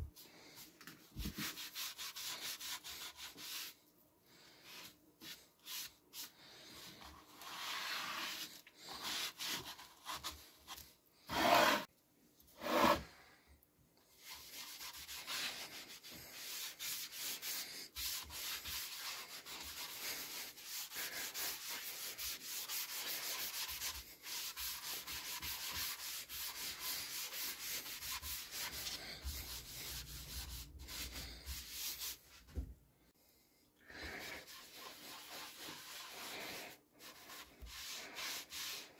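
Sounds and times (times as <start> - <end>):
sponge rubbing on boards: 4.6 - 10.5, 11.3 - 11.9, 12.6 - 13.0, 14.2 - 32.4, 34.2 - 38.9.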